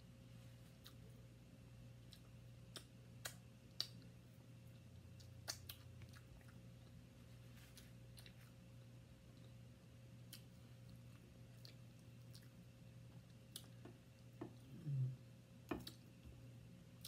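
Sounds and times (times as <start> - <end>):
steady low hum: 0.0 - 17.0
soft chewing: 0.2 - 17.0
low mouth sound: 14.5 - 15.3.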